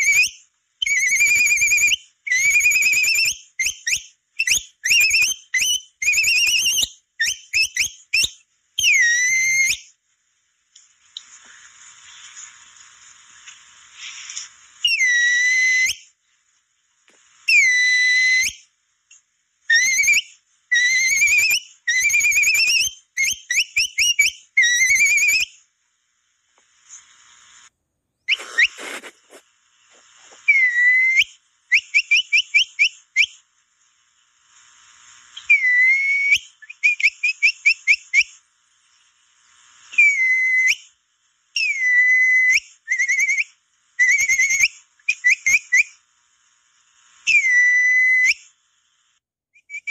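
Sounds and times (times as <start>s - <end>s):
animal call whistle trills: 0.0s - 9.9s, 14.8s - 16.1s, 17.5s - 18.6s, 19.7s - 25.5s, 28.3s - 29.1s, 30.5s - 33.4s, 35.4s - 38.4s, 40.0s - 40.9s, 41.6s - 46.0s, 47.3s - 48.5s.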